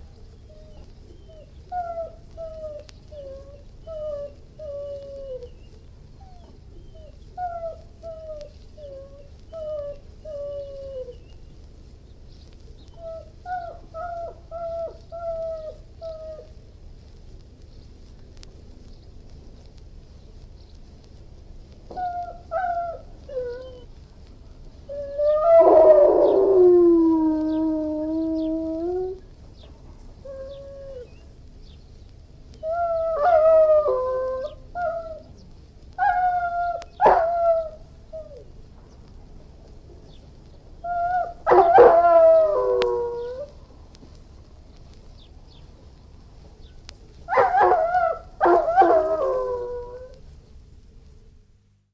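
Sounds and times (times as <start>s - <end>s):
dog howling: 21.9s - 23.9s, 24.9s - 29.2s, 32.6s - 35.3s, 36.0s - 38.4s, 40.8s - 43.6s, 47.3s - 50.2s
dog whining: 24.9s - 29.2s, 36.0s - 38.4s.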